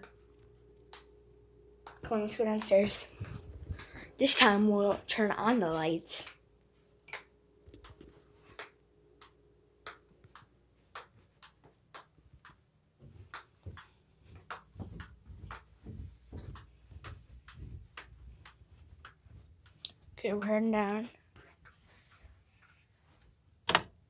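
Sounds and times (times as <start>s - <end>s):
soft footsteps: 1.9s - 5.1s, 10.0s - 23.5s.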